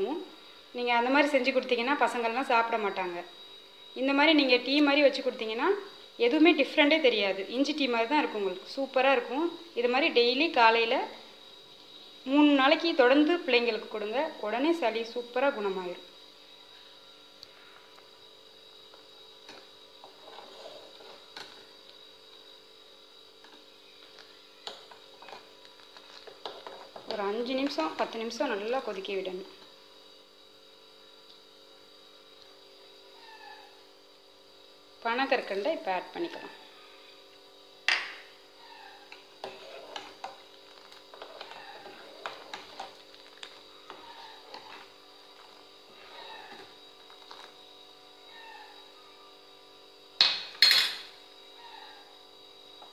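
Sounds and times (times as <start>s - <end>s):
faint steady hum: 0.0s - 52.9s
spoon stirring milk in saucepan: 18.9s - 22.4s, 23.4s - 28.2s, 38.0s - 47.6s.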